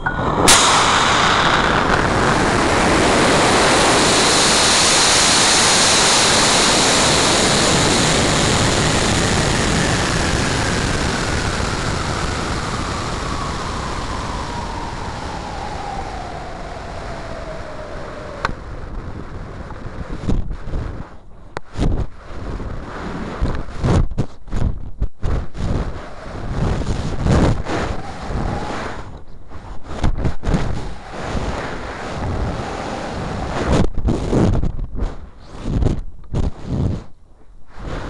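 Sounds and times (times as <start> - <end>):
sharp pop: 0.0 - 6.9
airflow whistle falling in pitch: 0.0 - 7.4, 9.6 - 18.8
rocket motor roaring: 0.0 - 20.2, 25.8 - 29.2, 30.4 - 33.9.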